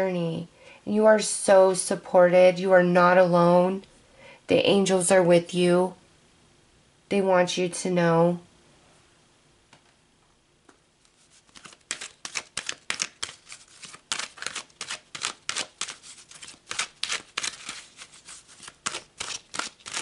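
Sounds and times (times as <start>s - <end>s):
cards being shuffled: 11.1s - 20.0s.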